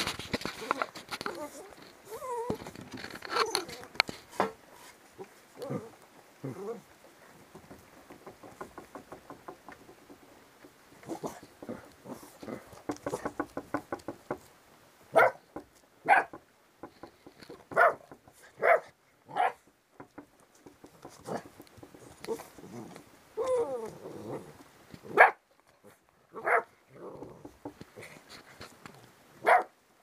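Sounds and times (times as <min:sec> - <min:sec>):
puppies scuffling: 0:00.0 - 0:05.4, 0:19.5 - 0:24.0
puppy barks: 0:15.1 - 0:15.4, 0:16.0 - 0:16.4, 0:17.7 - 0:18.0, 0:18.6 - 0:19.6, 0:25.1 - 0:25.4, 0:26.3 - 0:26.7, 0:29.4 - 0:29.8.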